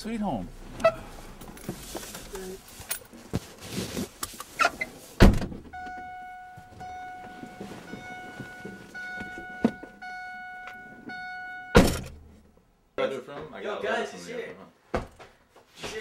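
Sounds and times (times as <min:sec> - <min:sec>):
car door slamming: 0:05.2 - 0:06.1, 0:11.6 - 0:12.2
car door warning tone: 0:05.6 - 0:12.2.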